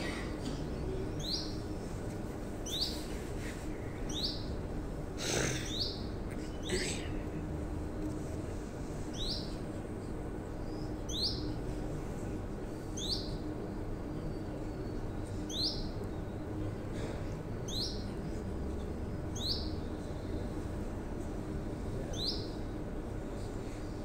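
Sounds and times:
steady low hum: 0.0s - 24.0s
canary chirping: 4.1s - 4.4s, 11.1s - 11.5s.

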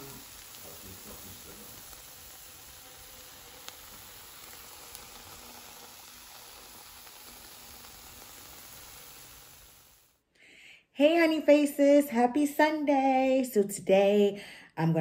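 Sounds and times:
eggs sizzling in a frying pan: 0.0s - 10.2s.

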